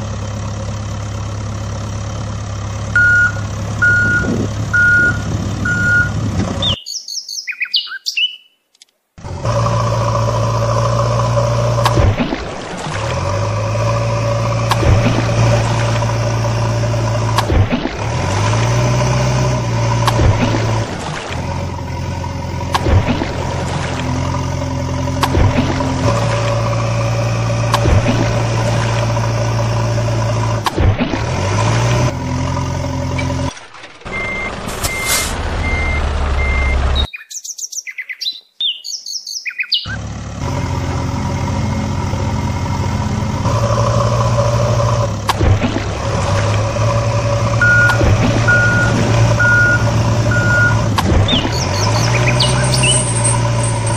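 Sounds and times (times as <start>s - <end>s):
truck engine running: 0.0s - 6.8s, 9.2s - 37.1s, 39.7s - 53.9s
reversing beeper: 3.0s - 6.2s, 34.1s - 37.1s, 47.6s - 53.9s
birds chirping: 3.0s - 8.7s, 36.4s - 40.0s, 47.6s - 53.9s.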